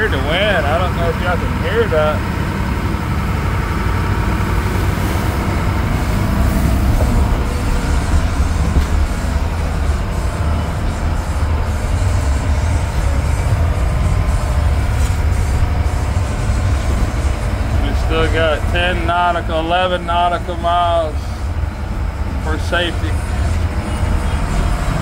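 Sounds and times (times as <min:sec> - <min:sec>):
boat engine rumbling: 0:00.0 - 0:25.0
strong wind: 0:02.2 - 0:22.4
wind buffeting microphone: 0:02.3 - 0:20.0.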